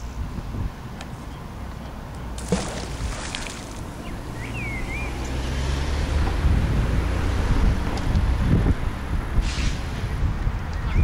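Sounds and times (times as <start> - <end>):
engine humming: 2.2 - 8.1
magnet splashing into water: 2.4 - 4.0
bird chirping: 3.9 - 5.6.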